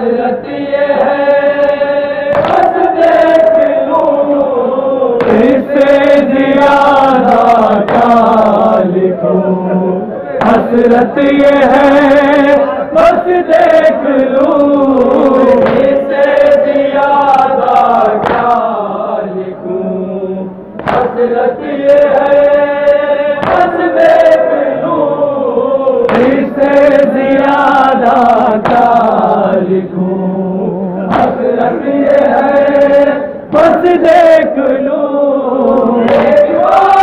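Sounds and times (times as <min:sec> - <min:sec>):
men chanting a dirge: 0:00.0 - 0:37.0
hands slapping chest: 0:18.2 - 0:18.6, 0:20.8 - 0:21.1.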